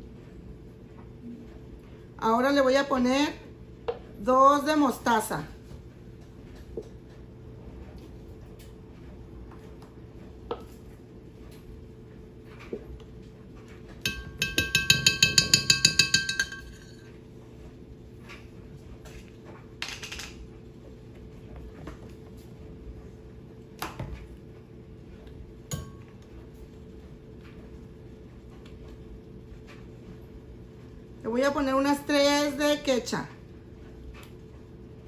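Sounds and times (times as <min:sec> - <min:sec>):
spoon clinking on glass jar: 0:14.1 - 0:17.1.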